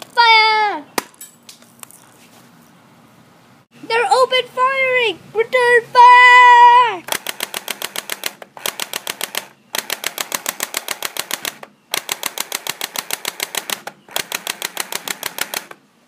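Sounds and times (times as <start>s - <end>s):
toy airsoft rifle firing bursts: 7.1s - 15.8s.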